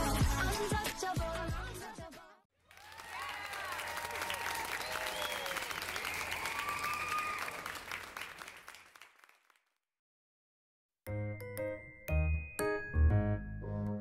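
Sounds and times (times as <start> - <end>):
applause: 2.6 - 9.8
people cheering: 2.7 - 8.8
tinkly tune: 11.1 - 14.0.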